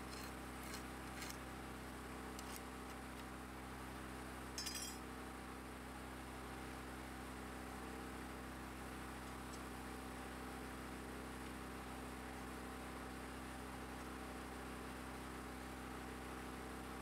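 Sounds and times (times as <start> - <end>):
steady background hum: 0.0 - 17.0
metallic clicks and clink: 4.6 - 5.0.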